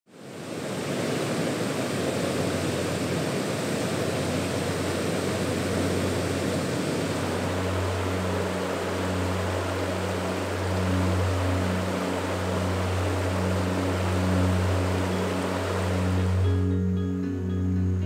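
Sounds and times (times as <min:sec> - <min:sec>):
waterfall and river rushing: 0:00.1 - 0:16.9
low steady hum: 0:03.8 - 0:18.0.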